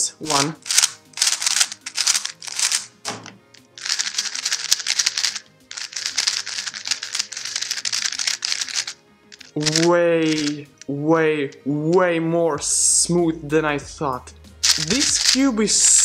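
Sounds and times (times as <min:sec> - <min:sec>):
soft background music: 0:00.0 - 0:16.0
puzzle cubes clicking: 0:00.3 - 0:03.0, 0:03.6 - 0:10.9, 0:14.6 - 0:16.0.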